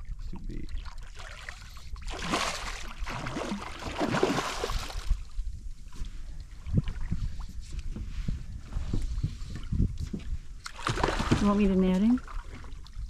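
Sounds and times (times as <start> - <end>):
fish splashing in water: 0.7 - 5.2, 10.7 - 12.8.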